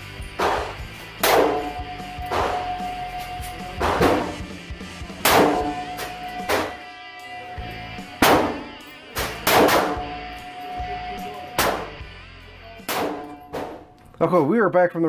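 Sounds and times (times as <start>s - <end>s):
background music: 0.0s - 15.0s
revolver shots: 0.4s - 2.8s, 5.2s - 6.8s.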